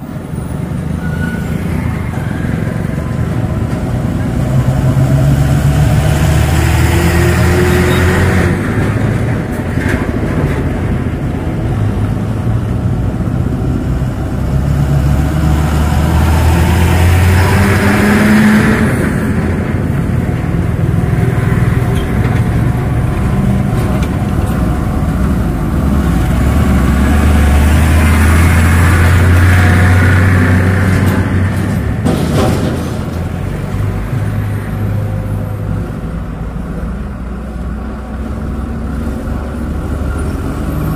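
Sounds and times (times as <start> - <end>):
trucks passing: 0.0 - 40.9
motorcycles passing: 0.6 - 32.0.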